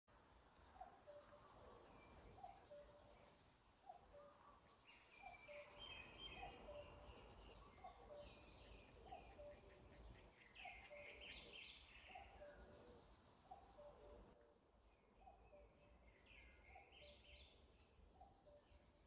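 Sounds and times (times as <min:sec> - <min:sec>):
birds chirping and warbling: 0:00.2 - 0:19.0.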